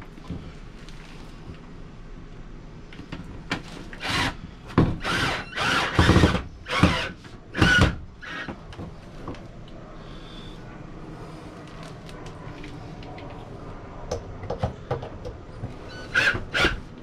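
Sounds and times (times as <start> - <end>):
cordless drill driving screw: 5.0 - 8.5, 15.9 - 16.8.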